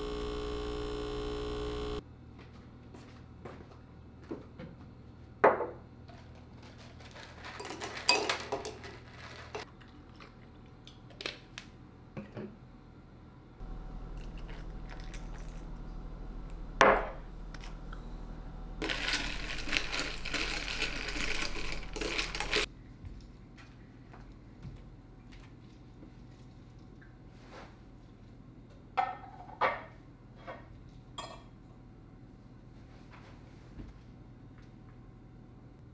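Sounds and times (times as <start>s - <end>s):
ice cubes rattling in glass: 6.8s - 9.6s, 18.8s - 22.7s.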